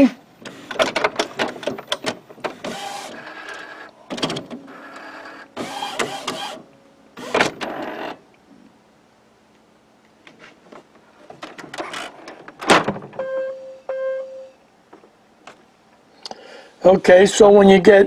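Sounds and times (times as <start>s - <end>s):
printer carriage whirring: 0.4s - 8.2s.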